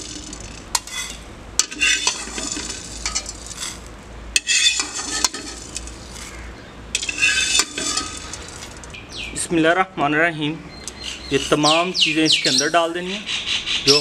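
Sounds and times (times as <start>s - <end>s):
metal skimmer scraping a pan: 0.0s - 6.4s, 7.0s - 8.9s
seeds rattling on metal: 0.0s - 9.0s.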